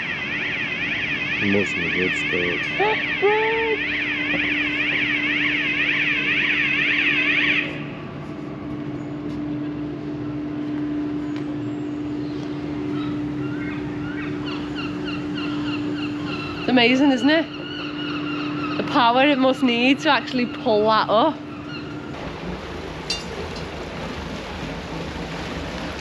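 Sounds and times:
warbling electronic alarm: 0:00.0 - 0:08.0, 0:11.7 - 0:21.8
steady low hum: 0:00.0 - 0:26.0.

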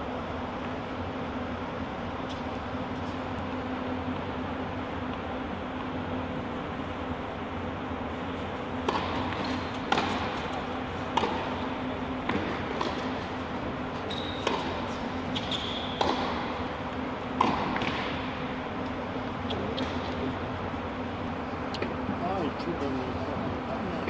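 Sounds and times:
steady low hum: 0:00.0 - 0:24.0
tennis balls struck by racquets: 0:08.7 - 0:18.9
short high squeaks: 0:14.0 - 0:14.5, 0:15.3 - 0:16.0.

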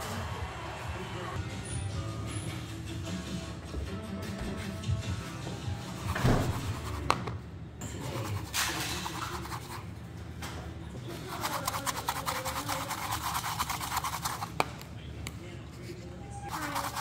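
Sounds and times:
sugar rasping in plastic bowl: 0:11.2 - 0:14.6, 0:16.5 - 0:17.0.

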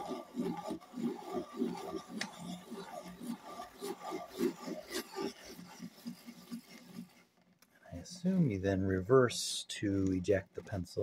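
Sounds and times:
pencil sharpener grinding rasp: 0:00.0 - 0:07.6.

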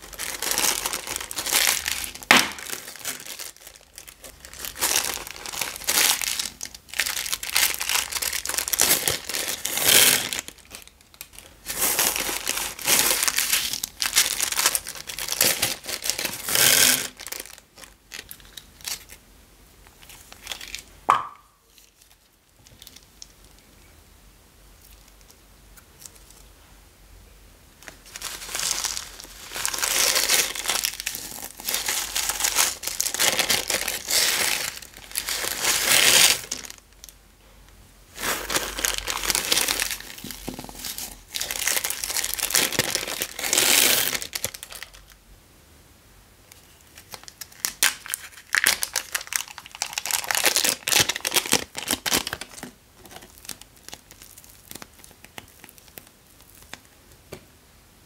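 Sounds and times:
plastic bags crinkling and tearing: 0:00.0 - 0:19.2, 0:19.9 - 0:21.0, 0:21.7 - 0:23.7, 0:27.8 - 0:37.2, 0:38.1 - 0:45.2, 0:46.6 - 0:57.0.

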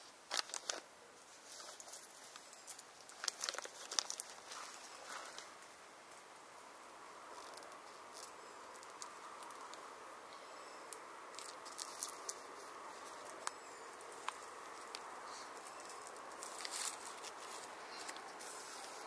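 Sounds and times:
faint steady hiss: 0:00.0 - 0:19.0
small clicks and ticks: 0:07.4 - 0:09.8.

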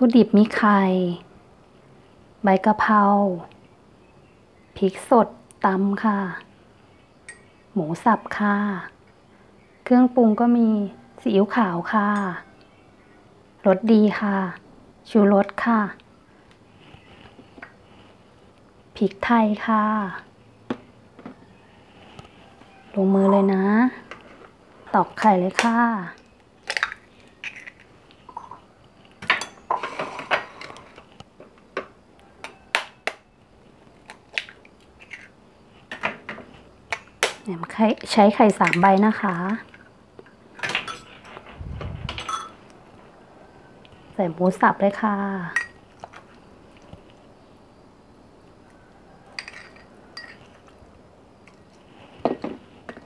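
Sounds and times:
cutlery clinking against ceramic bowls: 0:07.3 - 0:07.5, 0:29.3 - 0:30.0, 0:40.8 - 0:41.2, 0:42.2 - 0:42.6, 0:45.6 - 0:45.8, 0:49.4 - 0:50.6.

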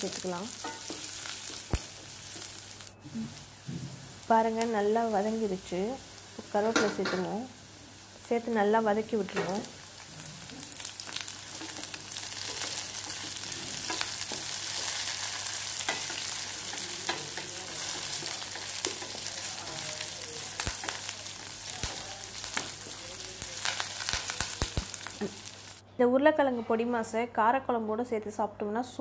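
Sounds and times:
onions sizzling in oil: 0:00.0 - 0:25.8
spatula clicking and scraping pan: 0:00.6 - 0:02.6, 0:11.1 - 0:19.9.

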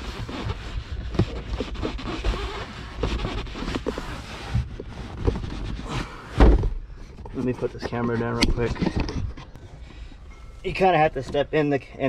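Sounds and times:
rustling and scraping: 0:00.0 - 0:12.0
soft thumps: 0:06.3 - 0:10.6.

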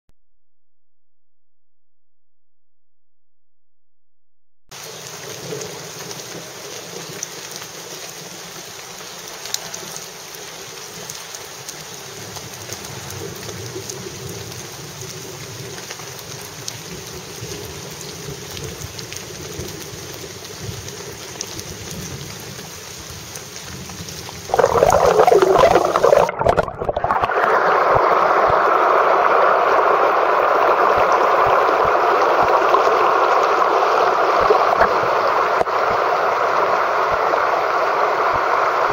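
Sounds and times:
rapids rushing over rocks: 0:24.5 - 0:38.9.

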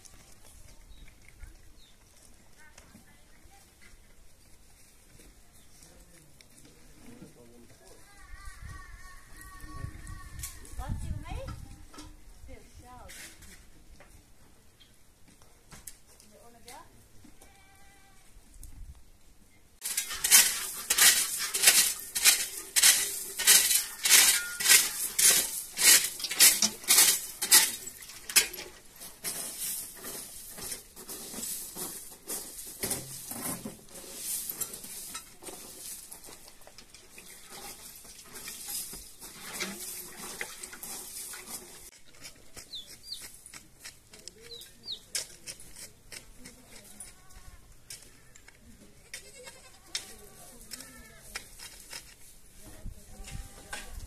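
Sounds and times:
utensil clinking: 0:19.8 - 0:29.4
utensil scraping a pot: 0:19.8 - 0:35.8.

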